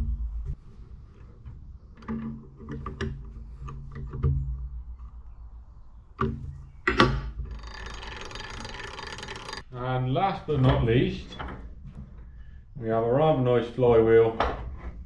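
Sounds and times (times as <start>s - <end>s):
whirring of spinning gears: 7.3s - 9.7s.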